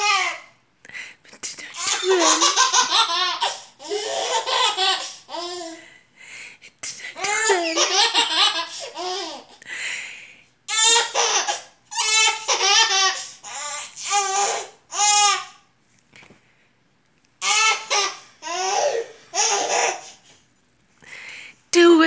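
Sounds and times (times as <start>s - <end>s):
baby laughing: 1.7s - 5.8s, 7.2s - 9.6s, 10.7s - 15.5s, 17.4s - 20.2s.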